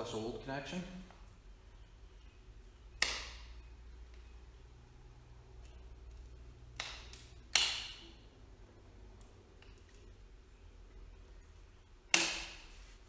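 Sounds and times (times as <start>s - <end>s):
wire cutters snipping: 3.0s - 3.5s, 5.6s - 8.2s, 12.1s - 12.7s.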